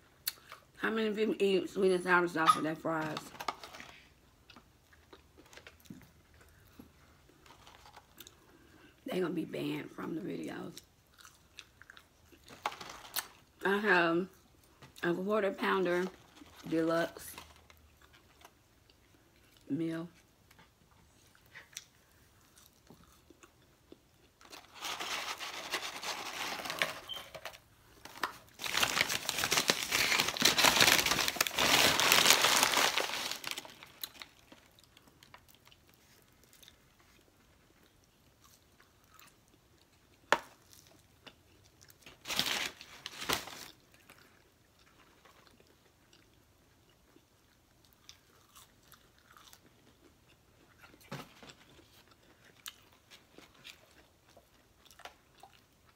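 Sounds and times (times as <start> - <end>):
paper packaging rustling: 3.2 - 4.1, 12.5 - 13.4, 24.4 - 34.7, 42.1 - 43.8.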